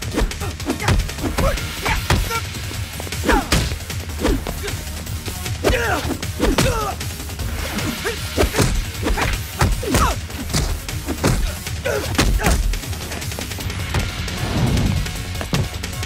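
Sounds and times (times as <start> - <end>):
punch and kick impacts: 0.0 - 4.8, 5.6 - 7.0, 7.8 - 12.8, 15.0 - 16.0
soundtrack music: 0.0 - 16.0.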